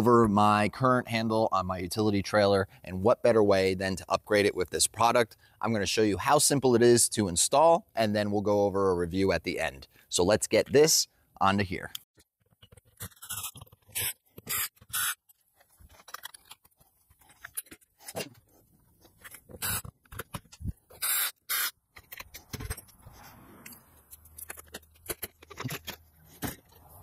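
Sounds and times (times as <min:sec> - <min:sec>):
cordless drill spinning: 0:13.2 - 0:15.2, 0:20.6 - 0:21.8.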